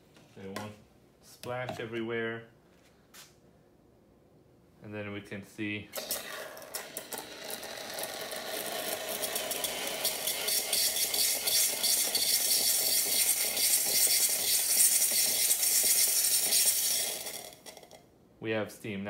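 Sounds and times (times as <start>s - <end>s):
espresso machine steam wand hissing: 6.0s - 17.8s.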